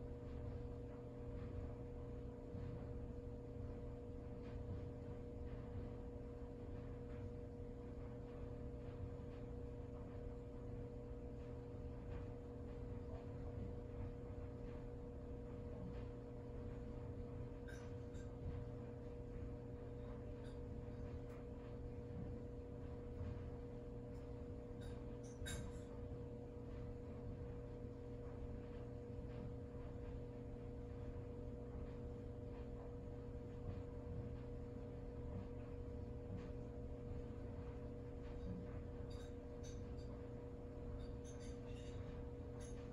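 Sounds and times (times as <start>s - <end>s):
faint steady hum: 0.0s - 42.9s
thin constant tone: 37.2s - 42.9s.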